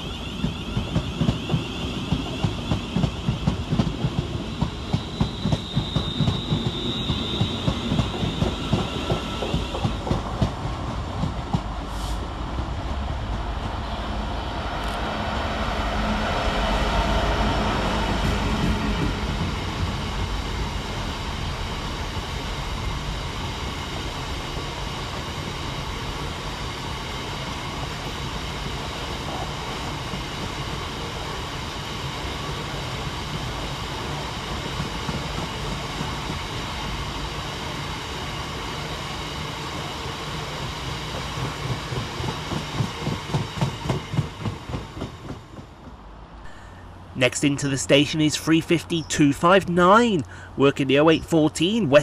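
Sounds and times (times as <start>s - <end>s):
train wheels rumbling and rattling: 0.0s - 47.2s
clickety-clack over rail joints: 0.4s - 11.9s, 34.6s - 36.6s, 40.4s - 46.5s.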